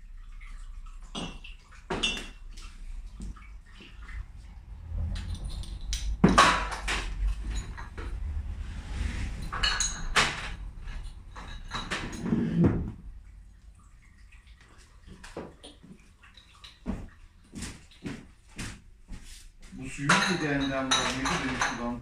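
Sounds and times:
bottling equipment clattering: 0:05.0 - 0:13.1, 0:19.8 - 0:22.0.

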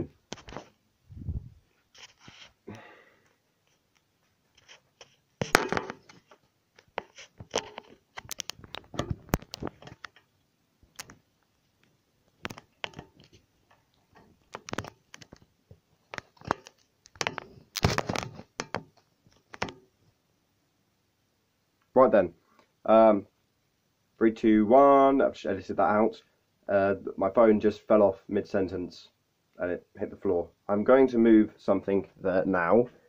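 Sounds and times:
smartphone handling noise: 0:04.6 - 0:10.2, 0:10.9 - 0:11.2, 0:12.4 - 0:13.4, 0:14.2 - 0:15.5, 0:16.1 - 0:19.9.

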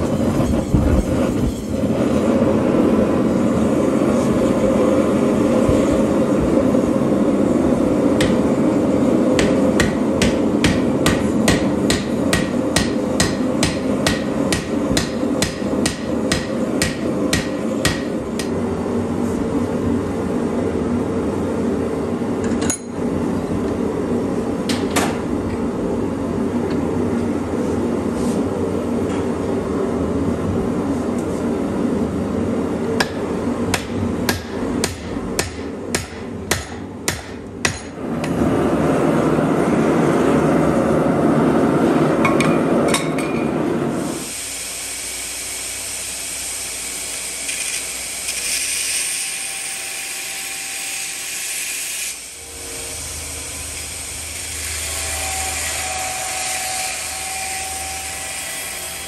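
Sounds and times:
hammer striking steel on anvil: 0:08.2 - 0:08.6, 0:09.3 - 0:18.6, 0:33.0 - 0:38.4, 0:42.2 - 0:43.6.

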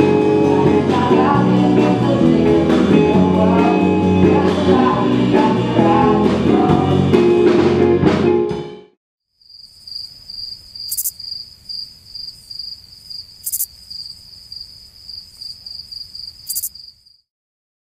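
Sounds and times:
crickets chirping: 0:09.4 - 0:17.3.

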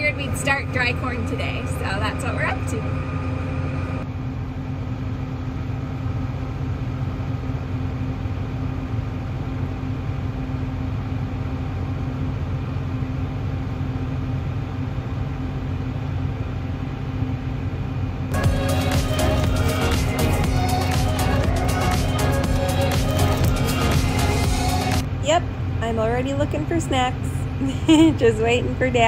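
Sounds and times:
combine diesel engine droning: 0:00.0 - 0:04.3, 0:18.3 - 0:27.6
music: 0:18.3 - 0:25.1.

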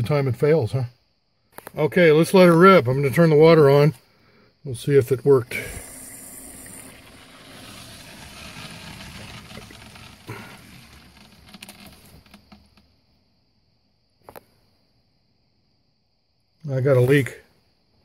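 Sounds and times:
water hissing through pipe: 0:05.3 - 0:12.4.

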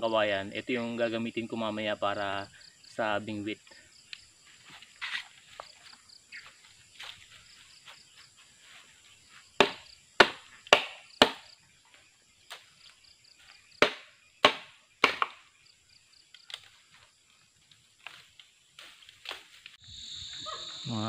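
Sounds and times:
knife chopping bamboo: 0:09.6 - 0:11.4, 0:13.8 - 0:15.4.

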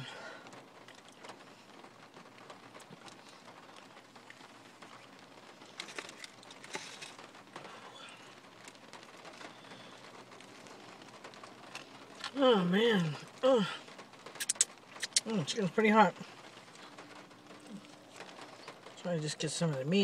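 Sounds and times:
food container clicks and rustles: 0:05.7 - 0:07.3
quiet chewing: 0:14.3 - 0:15.4, 0:16.2 - 0:19.0.

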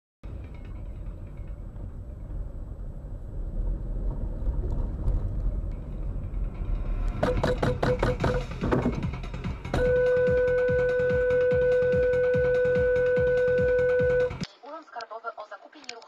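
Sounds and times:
engine and road rumble: 0:00.2 - 0:14.5
dotted tone: 0:07.2 - 0:08.5, 0:09.8 - 0:14.4
sharp knocks: 0:07.2 - 0:09.9.

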